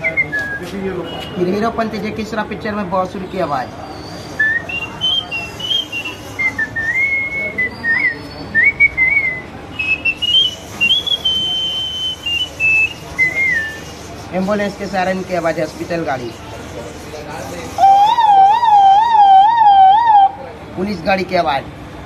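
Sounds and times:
man whistling a melody: 0.0s - 0.8s, 4.4s - 13.8s.

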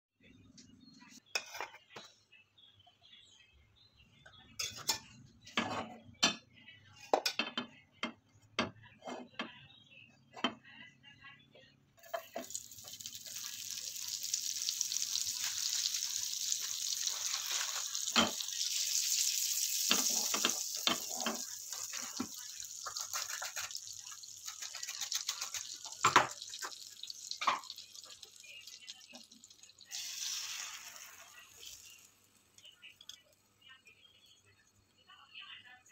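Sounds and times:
kitchen utensils clinking: 4.6s - 6.5s, 16.6s - 27.9s
butter sizzling in frying pan: 12.1s - 33.2s.

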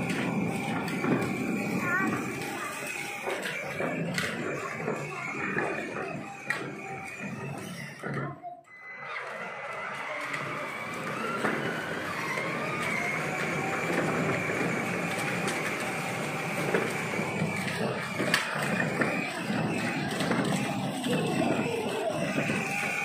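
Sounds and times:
electric motor and gearbox whine: 0.0s - 23.0s
plastic wheels rolling on paving: 0.0s - 23.0s.

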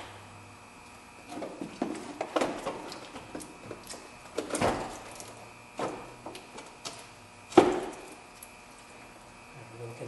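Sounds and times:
car battery clunks and knocks: 4.4s - 5.1s, 7.5s - 8.1s.

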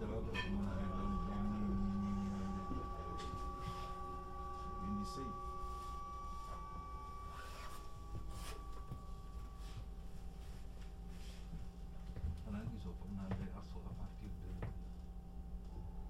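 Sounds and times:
low rolling rumble: 0.0s - 10.4s
electric train motor whine: 0.0s - 16.0s.

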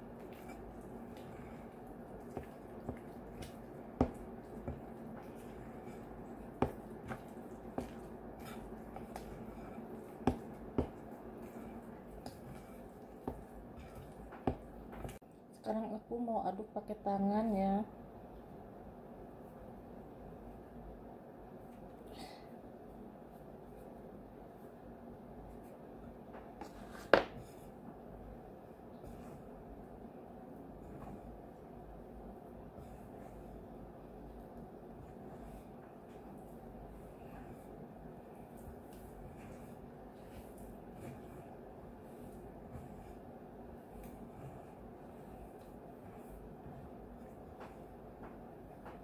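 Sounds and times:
spoon squishing wet dough: 0.0s - 15.2s, 26.6s - 49.0s.

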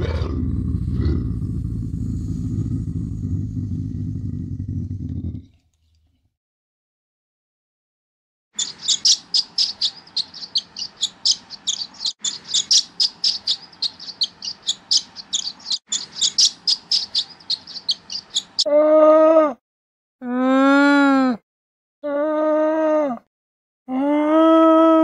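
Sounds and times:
camel groaning: 0.0s - 5.5s
swallows twittering: 8.6s - 18.7s.

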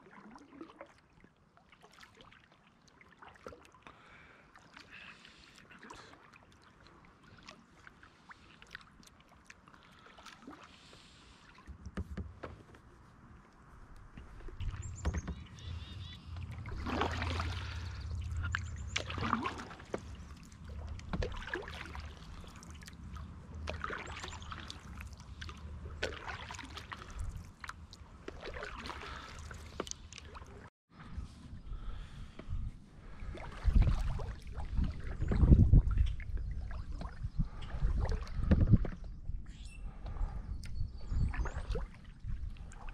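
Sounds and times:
paddle splashing in water: 0.0s - 30.7s, 31.8s - 39.2s, 41.0s - 42.9s
steady low rumble: 13.2s - 26.0s
water dripping: 14.4s - 30.5s.

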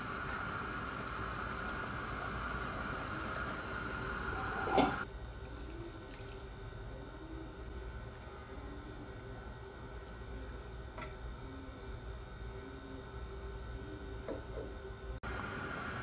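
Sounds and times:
pot simmering and bubbling: 0.0s - 16.0s.

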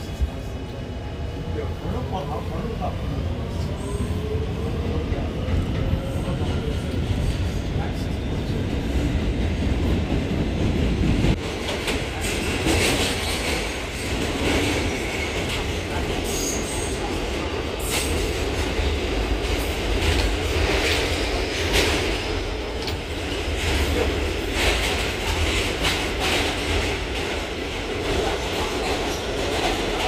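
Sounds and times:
subway train rumble: 0.0s - 30.0s
rail-joint clicks: 19.5s - 22.1s, 22.7s - 27.4s.

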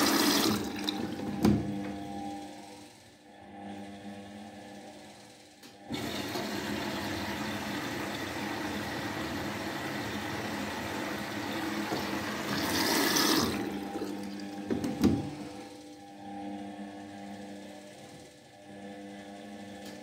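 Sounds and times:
water rushing in washing machine: 0.0s - 1.6s, 5.8s - 15.5s.

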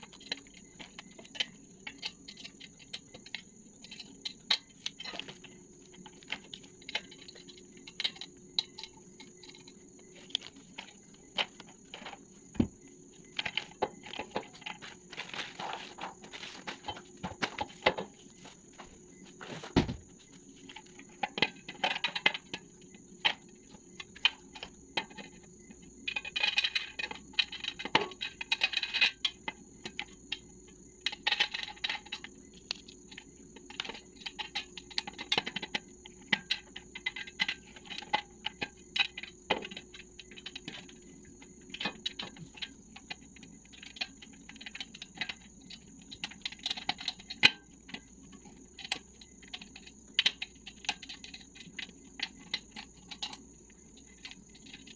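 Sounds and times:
small metal clicks and taps: 0.0s - 12.2s, 26.1s - 54.9s.

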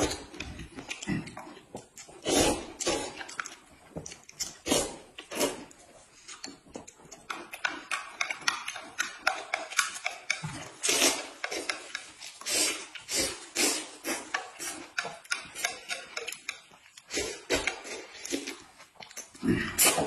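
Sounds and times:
chewing: 0.0s - 20.0s
noodles slurped: 0.0s - 20.0s
chopsticks clicking against plate: 6.3s - 12.1s, 14.3s - 18.4s.

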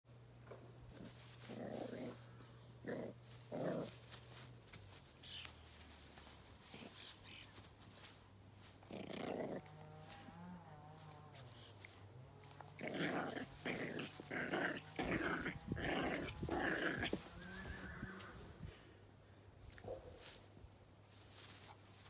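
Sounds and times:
puppy growling: 0.9s - 4.5s, 8.8s - 18.2s.

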